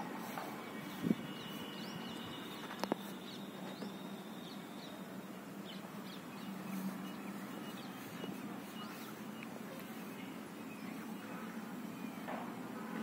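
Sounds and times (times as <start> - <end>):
bird chirps: 0.6 - 12.4.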